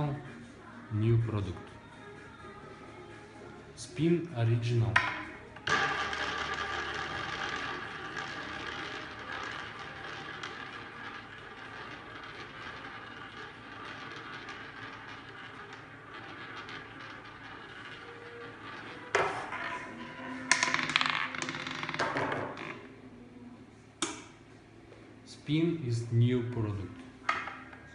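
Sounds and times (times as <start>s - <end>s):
roulette ball clattering: 4.5s - 22.9s, 24.0s - 24.4s, 26.6s - 27.9s
roulette ball rolling: 4.5s - 23.3s, 24.0s - 24.4s, 26.0s - 27.9s.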